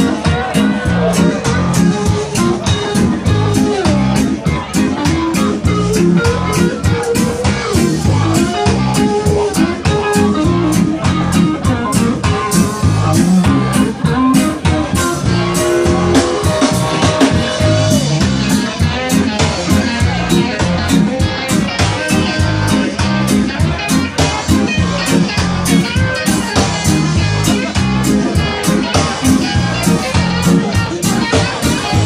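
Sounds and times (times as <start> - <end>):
bass guitar: 0.0 - 32.0
drum kit beat: 0.0 - 32.0
electric guitar: 0.0 - 32.0.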